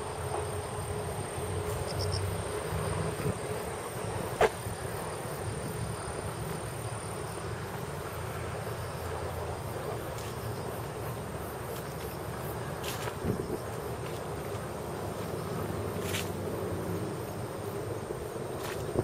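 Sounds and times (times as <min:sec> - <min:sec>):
high-pitched insect chorus: 0:00.0 - 0:19.0.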